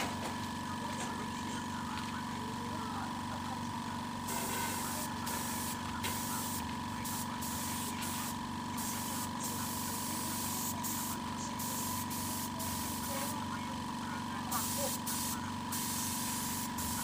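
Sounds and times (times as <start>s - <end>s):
air compressor humming: 0.0s - 17.0s
spray gun hissing in bursts: 4.3s - 13.4s, 14.5s - 17.0s.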